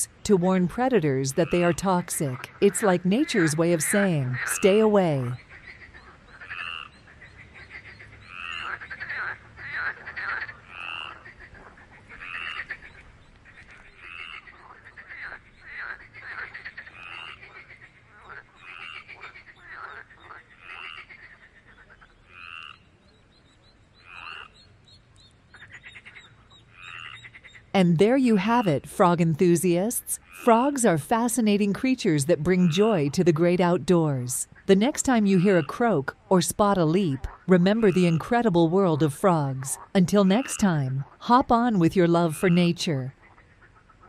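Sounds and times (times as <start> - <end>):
frogs croaking: 0.0 - 44.0
frog pulsed trills: 25.6 - 43.7.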